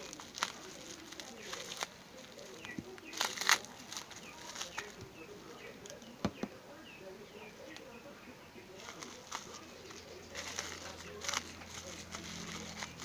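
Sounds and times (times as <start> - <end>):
bubble wrap crinkling: 0.0 - 6.1, 8.8 - 13.0.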